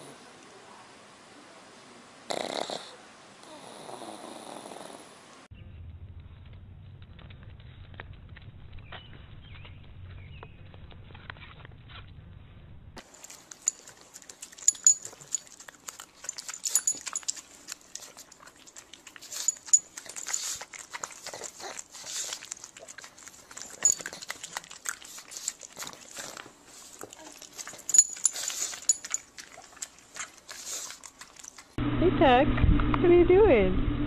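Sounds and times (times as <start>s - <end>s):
dog snuffling and snorting: 13.1s - 31.7s.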